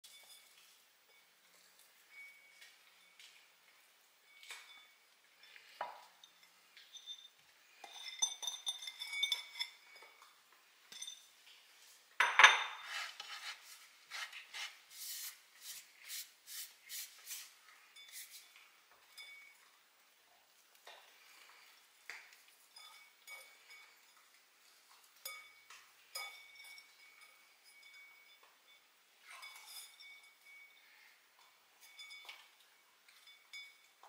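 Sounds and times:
fingers scraping rice in bowl: 0:12.8 - 0:17.5.

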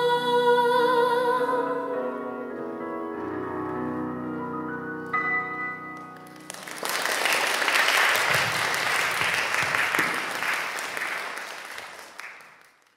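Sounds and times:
piano chord: 0:01.5 - 0:06.5
audience applauding: 0:05.9 - 0:12.9.

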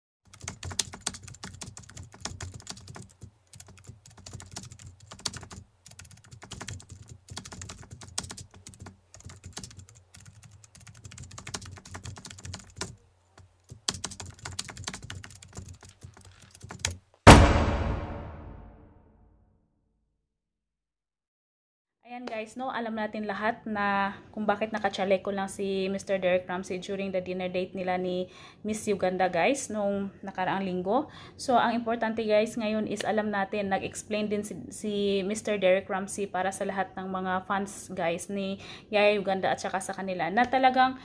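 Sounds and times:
loud ringing hit: 0:17.3 - 0:19.0.

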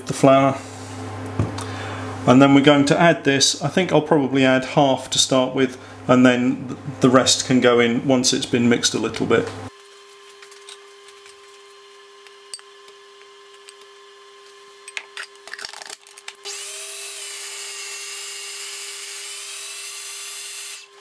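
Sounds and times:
food processor motor whirring: 0:09.8 - 0:21.0.

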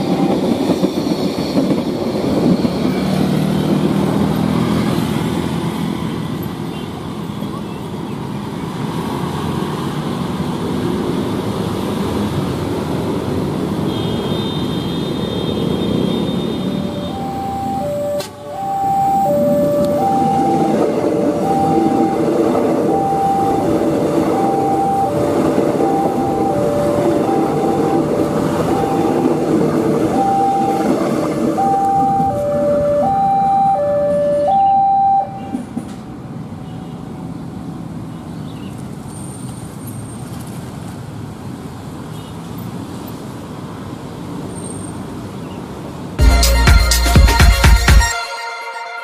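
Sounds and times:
train running past: 0:00.0 - 0:38.1
cars crossing: 0:01.9 - 0:46.3
level crossing warning tones: 0:16.2 - 0:35.6.

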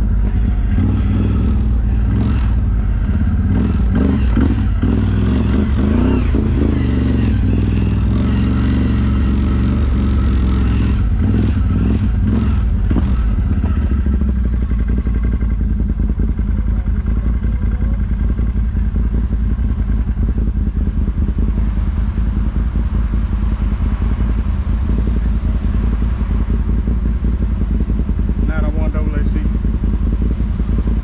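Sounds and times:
atv engine running: 0:00.0 - 0:31.0.

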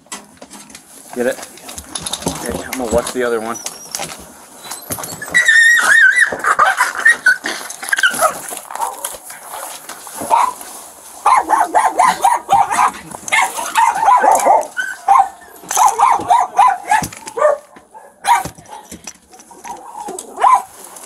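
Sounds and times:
dog whining: 0:02.5 - 0:09.0, 0:11.2 - 0:20.7
dog yelping: 0:02.5 - 0:09.2, 0:10.2 - 0:20.8
dog barking: 0:08.1 - 0:18.9, 0:19.7 - 0:20.8.

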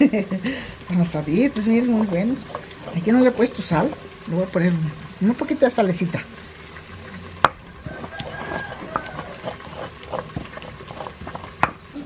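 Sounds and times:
stone pestle grinding in bowl: 0:01.4 - 0:04.2, 0:07.4 - 0:11.8
rooster crowing: 0:07.8 - 0:09.7.

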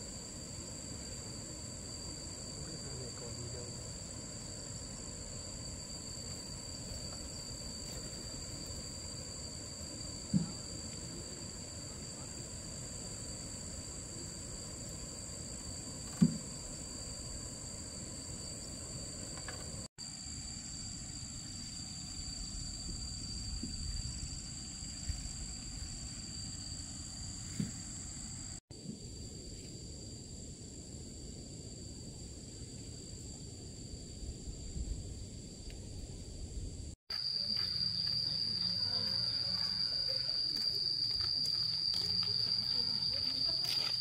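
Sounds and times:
crickets droning: 0:00.0 - 0:44.0.

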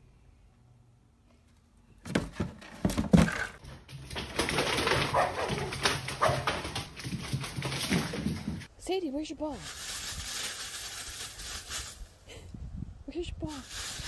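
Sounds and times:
small dog yapping and whining: 0:05.1 - 0:06.5.

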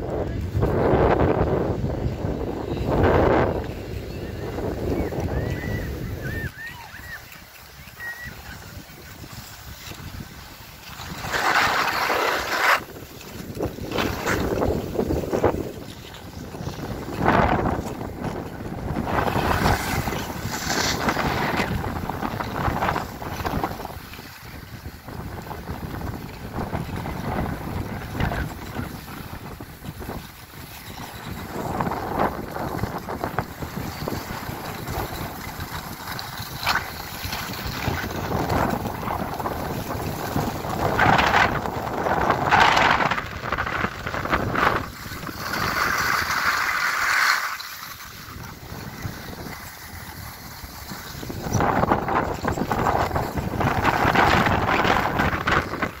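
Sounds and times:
wind buffeting microphone: 0:00.0 - 0:46.9, 0:47.8 - 0:56.0
skis scraping over snow: 0:00.0 - 0:56.0.

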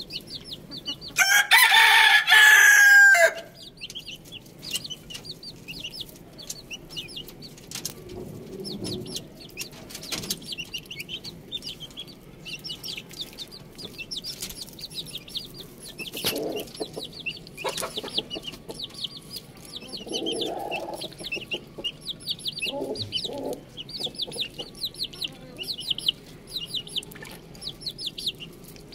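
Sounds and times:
chicks and ducklings peeping: 0:00.0 - 0:28.9.

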